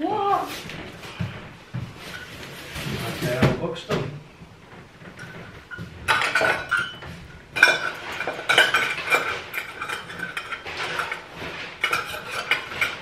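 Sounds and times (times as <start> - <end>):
cutlery clinking and clattering: 5.1 - 13.0.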